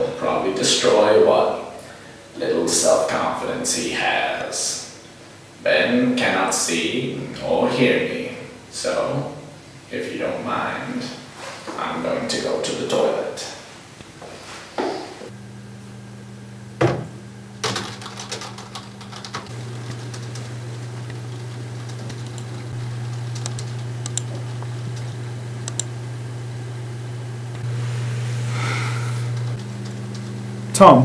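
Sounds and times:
keyboard typing: 17.6s - 25.9s, 29.5s - 30.4s
low hum: 18.5s - 31.0s
mouse clicks: 23.4s - 24.3s, 25.6s - 25.9s.

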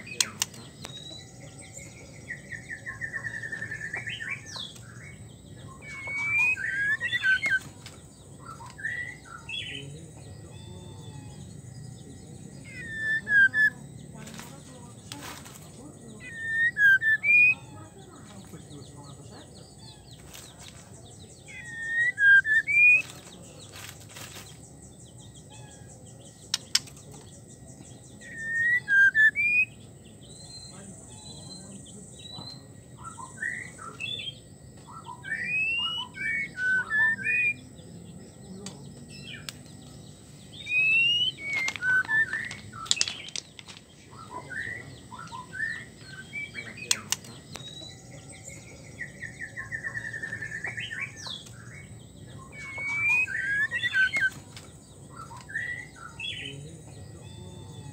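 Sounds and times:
sharp bird clicks: 0.0s - 1.1s, 26.4s - 27.2s, 40.7s - 43.8s, 46.8s - 47.8s
bird whistled call notes: 5.7s - 7.7s, 34.9s - 37.7s, 40.5s - 43.2s, 52.4s - 54.4s.

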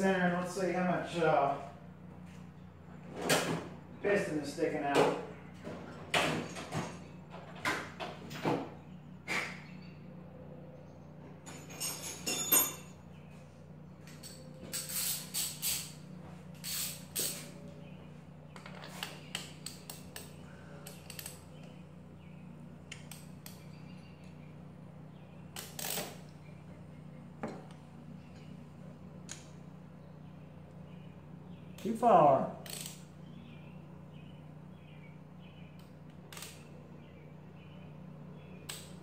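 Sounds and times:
faint steady hum: 0.0s - 39.0s
metal engine parts clinking: 11.4s - 13.1s.

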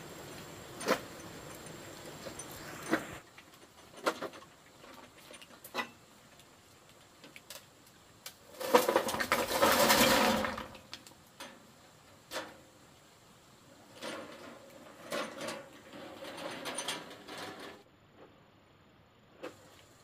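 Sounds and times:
loud scraping: 8.5s - 10.7s.

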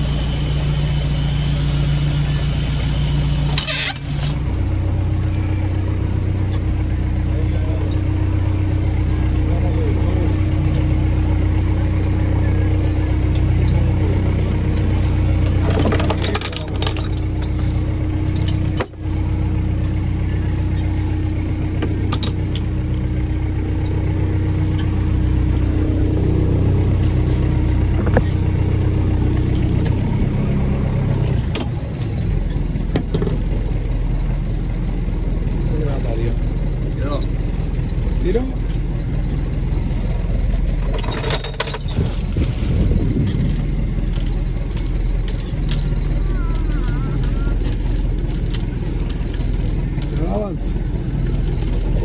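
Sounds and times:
boat engine droning: 0.0s - 52.0s
knocks and clinks of gear: 15.4s - 17.6s, 40.5s - 52.0s.

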